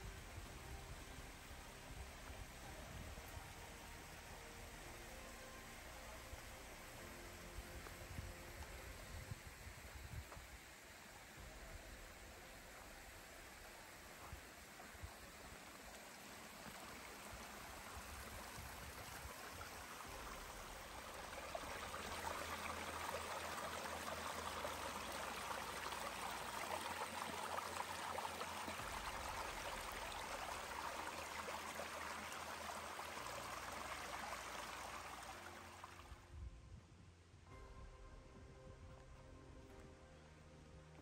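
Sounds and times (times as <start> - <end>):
creek water rushing: 0.0 - 36.2.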